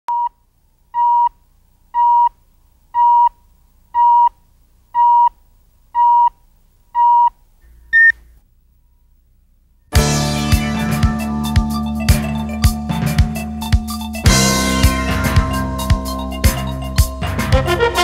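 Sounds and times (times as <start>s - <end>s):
music with drum hits: 10.0s - 18.0s.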